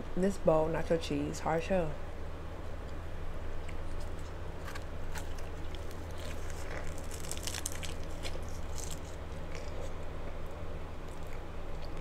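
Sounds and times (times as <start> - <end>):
taco shell crunching: 3.6 - 12.0.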